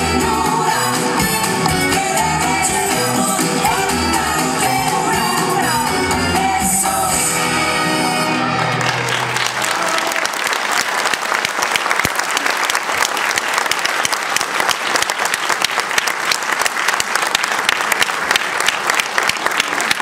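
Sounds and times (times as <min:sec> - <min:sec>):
music: 0:00.0 - 0:10.2
audience applauding: 0:08.5 - 0:20.0.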